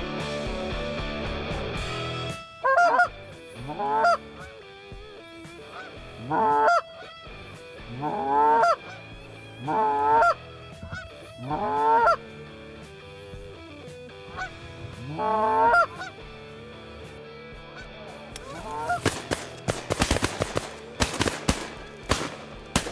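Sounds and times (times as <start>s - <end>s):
goose honking: 2.6s - 4.5s, 5.7s - 7.2s, 7.9s - 12.3s, 14.3s - 16.3s, 17.7s - 19.0s.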